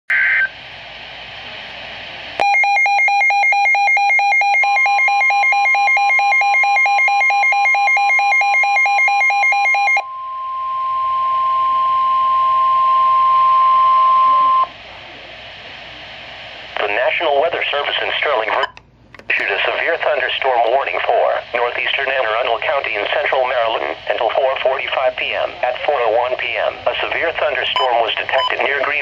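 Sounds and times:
pulsing alarm beeps: 2.4s - 14.7s
steady warning tone: 22.2s - 29.0s.

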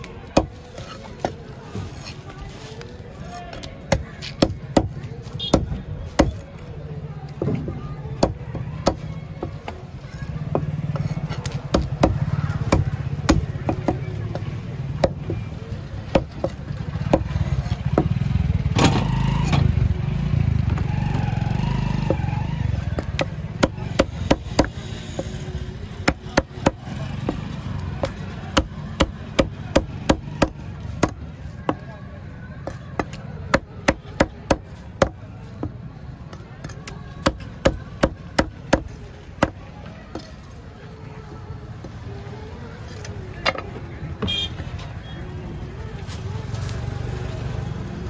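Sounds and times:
cleaver chopping on wooden block: 3.9s - 6.4s, 10.5s - 14.4s, 22.8s - 25.4s, 26.0s - 31.8s.

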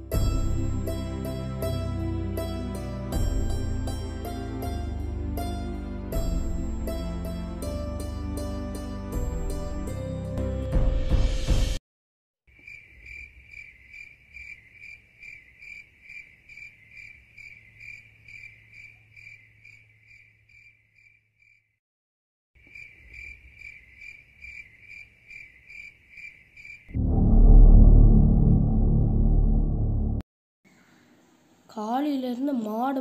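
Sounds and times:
cricket chirping: 12.5s - 21.8s, 22.6s - 27.0s.

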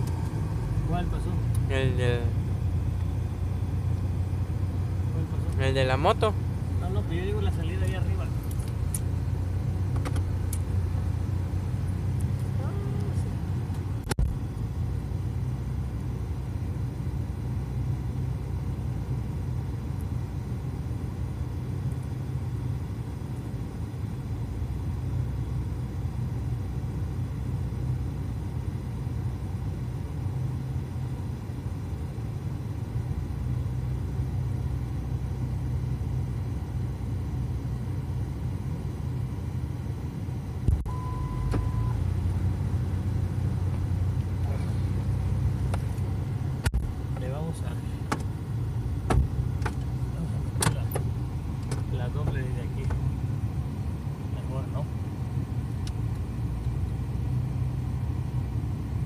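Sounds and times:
short beep: 40.7s - 42.0s.

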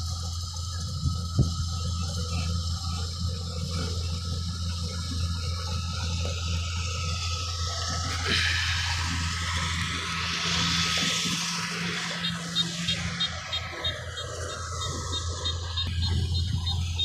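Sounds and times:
tractor diesel engine droning: 0.0s - 17.0s
rushing noise: 5.8s - 17.0s.

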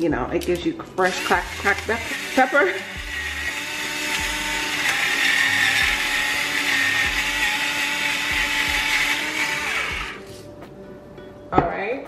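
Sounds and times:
electric pepper grinder grinding: 1.0s - 10.2s.

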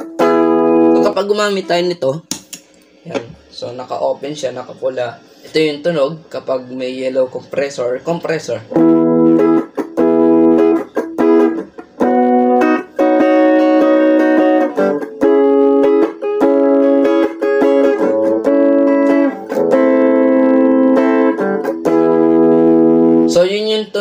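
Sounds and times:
clean electric guitar chords: 0.0s - 1.2s, 8.7s - 23.4s.

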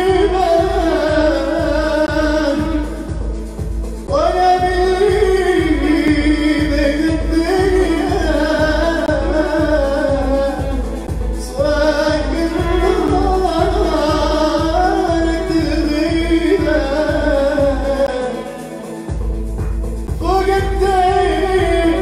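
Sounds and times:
man singing into a microphone: 0.0s - 3.4s, 4.0s - 18.8s, 20.2s - 22.0s
keyboard playing a steady beat: 0.0s - 22.0s
electric violin bowing: 5.2s - 22.0s.

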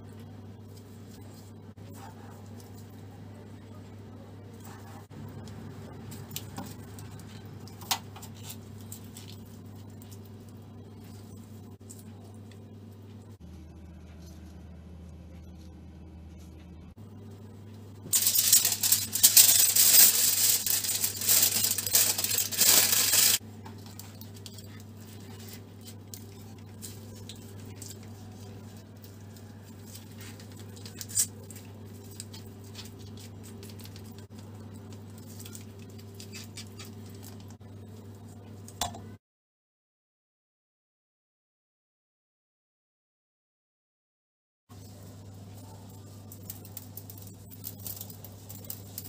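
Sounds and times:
steady low hum: 0.0s - 39.2s
aluminium foil crinkling: 4.6s - 12.6s, 18.0s - 38.3s, 44.8s - 49.0s.

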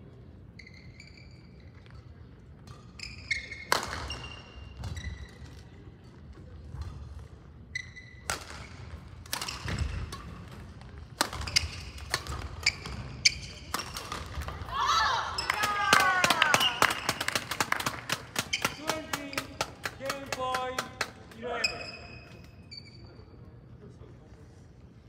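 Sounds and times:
shoes squeaking on floor: 0.5s - 5.7s, 6.8s - 14.6s, 18.3s - 19.8s, 21.3s - 23.4s
racket striking shuttlecock: 3.5s - 5.0s, 8.2s - 14.6s.

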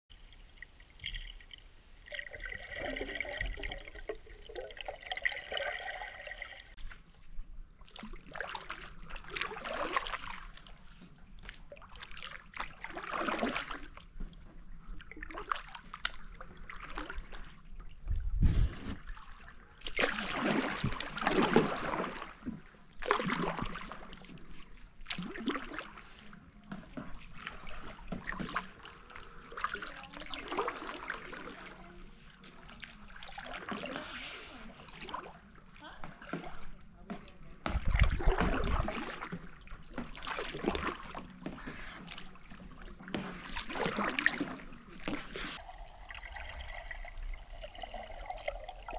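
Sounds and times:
water dripping: 0.1s - 6.8s, 45.6s - 48.9s
kayak paddle splashing: 0.1s - 7.1s, 7.8s - 48.9s
muffled underwater water sound: 0.1s - 48.9s.

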